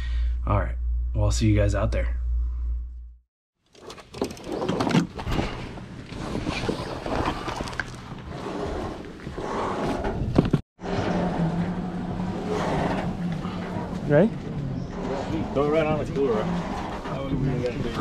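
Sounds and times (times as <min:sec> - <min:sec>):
boat engine idling: 0:10.8 - 0:18.0.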